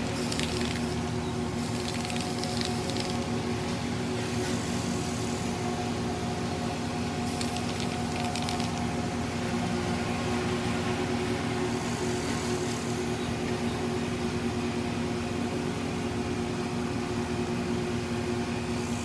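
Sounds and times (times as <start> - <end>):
spray paint can hissing: 0.0 - 1.0, 1.6 - 3.3, 7.3 - 8.9
mechanical hum: 0.0 - 19.0.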